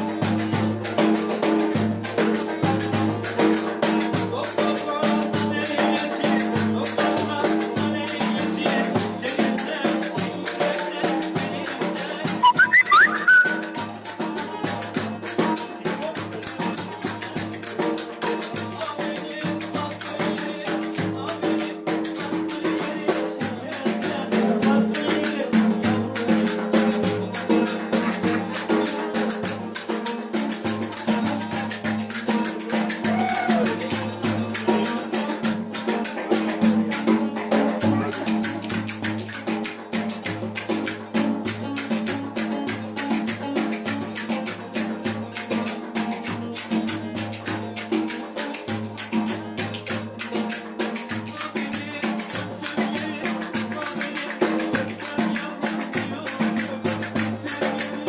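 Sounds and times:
hand percussion clatter: 0:00.0 - 0:58.0
lute playing folk dance music: 0:12.4 - 0:14.2.

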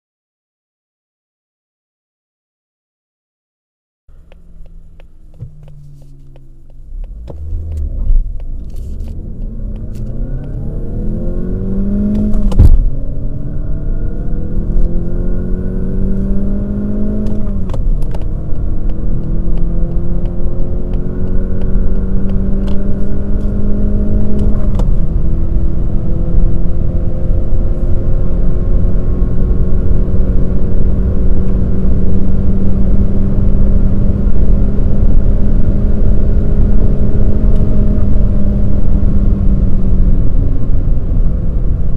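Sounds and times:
car engine accelerating through gears: 0:04.1 - 0:41.9.

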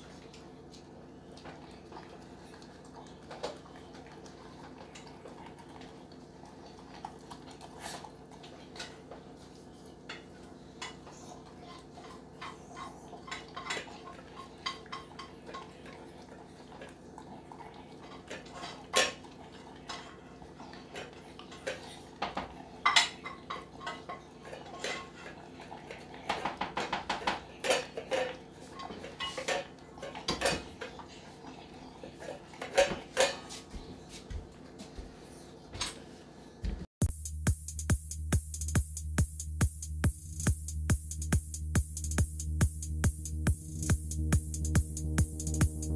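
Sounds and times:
dog eating from metal bowl: 0:00.0 - 0:33.8.

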